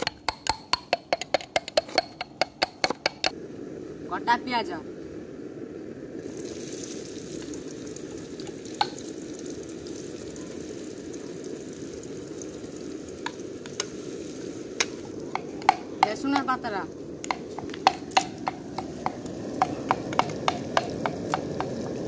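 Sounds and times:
spatula knocking against pan: 0:00.0 - 0:03.3, 0:14.8 - 0:16.5, 0:17.2 - 0:21.7
onions sizzling in oil: 0:06.2 - 0:22.0.

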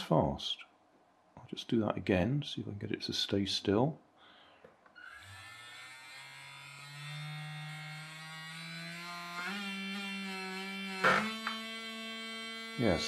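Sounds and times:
small vibration motor buzzing: 0:05.0 - 0:13.0.

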